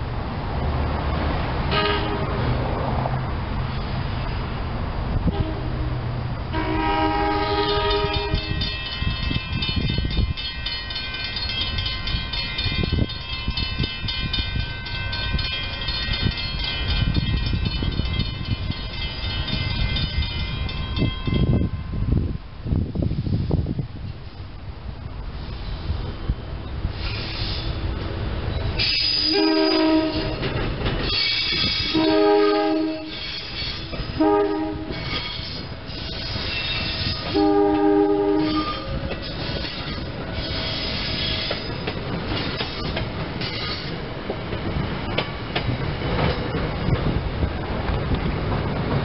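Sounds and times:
train horn: 0:01.7 - 0:02.4, 0:05.2 - 0:08.6, 0:29.1 - 0:30.5, 0:31.4 - 0:35.6, 0:37.0 - 0:39.0
train wheels clattering on rails: 0:06.8 - 0:21.7, 0:27.0 - 0:49.0.

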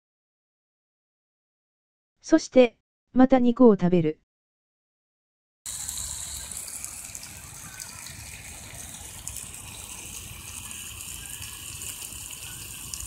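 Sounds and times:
campfire crackling: 0:05.7 - 0:13.0
meat sizzling in a pan: 0:05.7 - 0:13.0.

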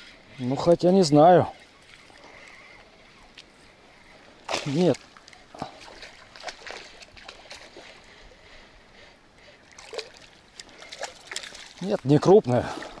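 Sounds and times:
fish splashing in water: 0:04.4 - 0:08.1, 0:09.7 - 0:13.0.

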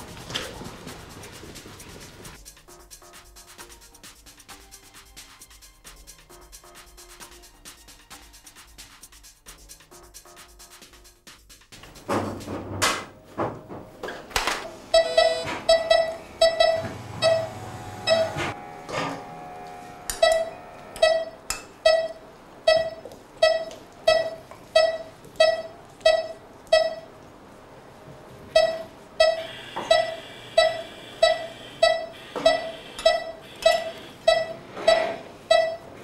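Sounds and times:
pulse oximeter beeping: 0:14.9 - 0:27.1, 0:28.5 - 0:35.9.

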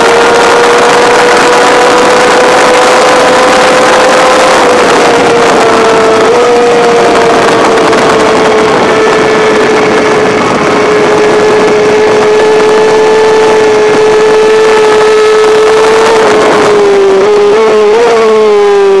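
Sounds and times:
motorcycle engine running hard: 0:00.0 - 0:19.0
wind rush on microphone: 0:00.0 - 0:19.0.

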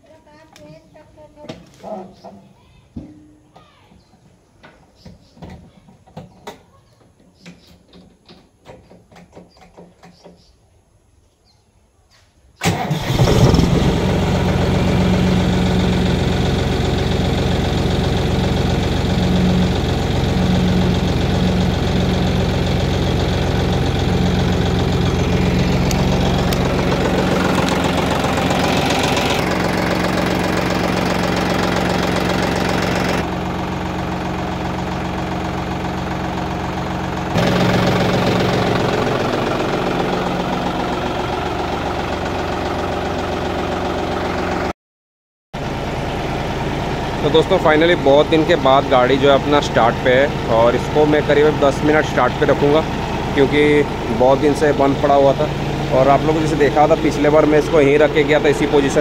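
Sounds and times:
tractor diesel engine starting and idling: 0:12.6 - 0:44.7, 0:45.6 - 0:59.0.

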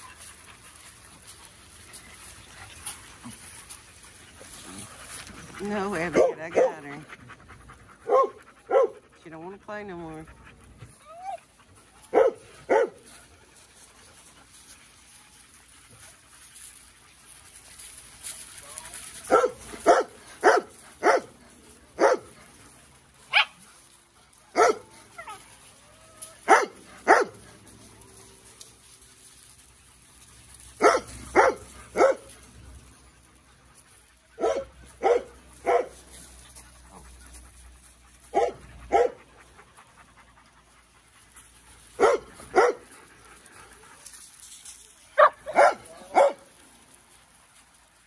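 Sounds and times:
dog barking: 0:08.1 - 0:09.0, 0:12.1 - 0:13.0, 0:19.3 - 0:21.3, 0:22.0 - 0:22.3, 0:24.6 - 0:24.8, 0:26.5 - 0:27.4, 0:30.8 - 0:32.2, 0:34.4 - 0:35.9, 0:38.3 - 0:39.2, 0:42.0 - 0:42.8, 0:45.2 - 0:46.4.

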